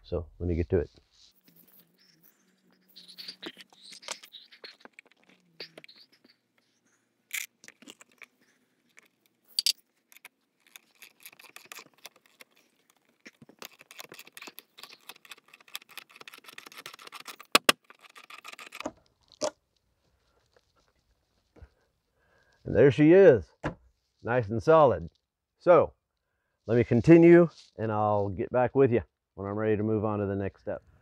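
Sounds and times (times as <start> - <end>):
metal clinking and scraping: 7.3 - 19.5.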